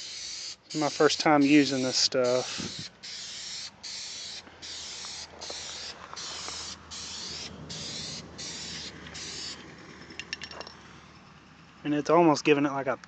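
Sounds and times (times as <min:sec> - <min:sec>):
aerosol spray can hissing: 0:00.0 - 0:09.6.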